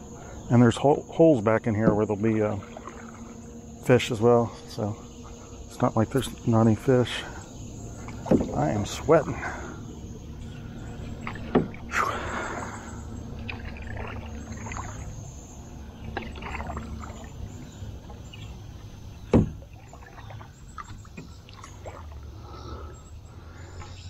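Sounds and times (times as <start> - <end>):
paddle stroking through water: 0.0 - 22.9
water splashes and drips: 1.4 - 3.5, 7.9 - 9.7, 10.4 - 22.6.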